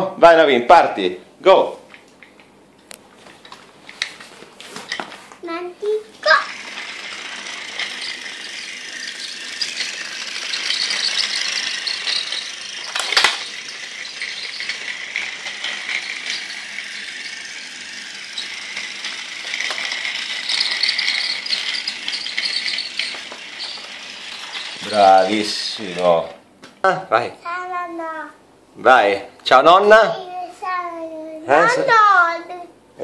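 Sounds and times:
toy train wheels rattling: 3.3s - 26.2s
toy train motor whirring: 3.3s - 26.3s, 30.2s - 32.5s.

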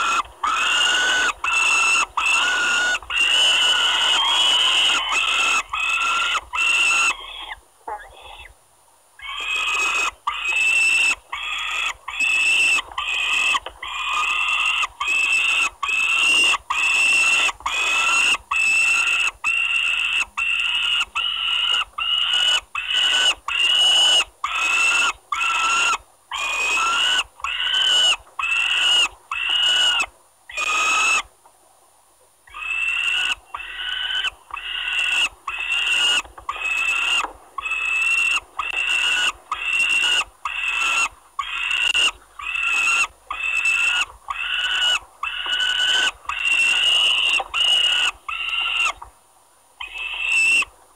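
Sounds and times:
falcon chicks begging calls: 0.0s - 7.6s, 32.5s - 49.1s.

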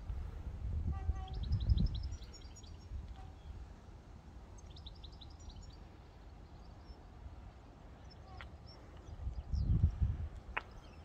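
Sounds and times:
songbird chirping: 1.0s - 3.7s, 4.4s - 11.0s.

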